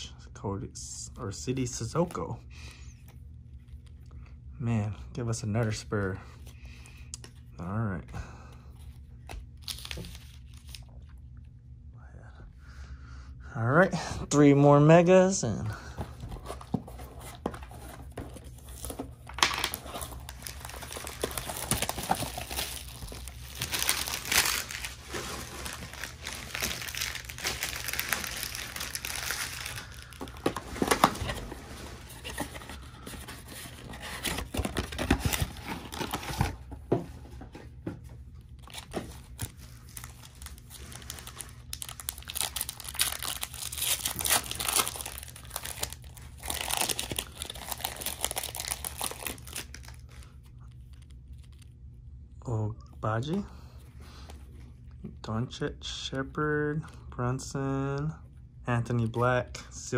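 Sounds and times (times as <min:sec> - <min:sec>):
card pack wrappers crinkling and tearing: 0:09.2 - 0:11.2, 0:15.9 - 0:36.7, 0:38.4 - 0:51.8.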